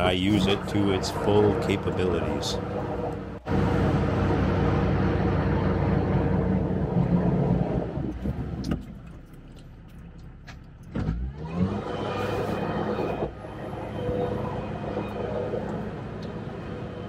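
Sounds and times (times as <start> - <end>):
vehicle engine running and revving: 10.7 - 17.0.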